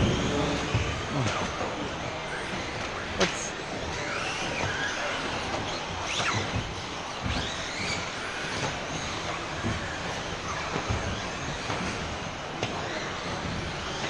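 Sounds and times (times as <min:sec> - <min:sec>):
hall noise: 0:00.0 - 0:10.8
electric toy car motors whining: 0:00.0 - 0:14.0.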